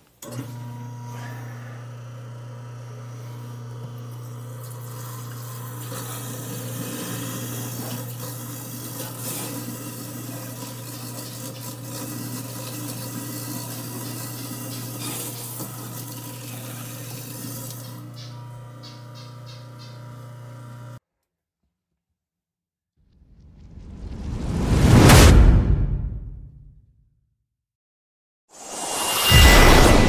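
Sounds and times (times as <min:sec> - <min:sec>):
tap water running into sink: 0:04.0 - 0:18.2
low hum: 0:23.1 - 0:26.8.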